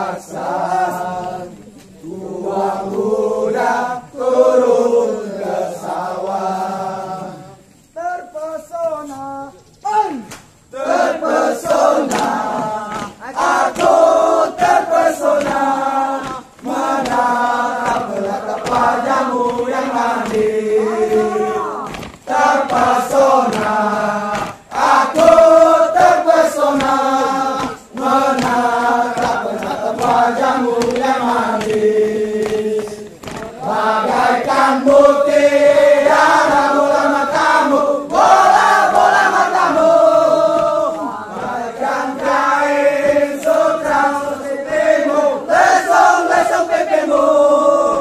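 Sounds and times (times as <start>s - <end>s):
men chanting in unison: 0.0s - 48.0s.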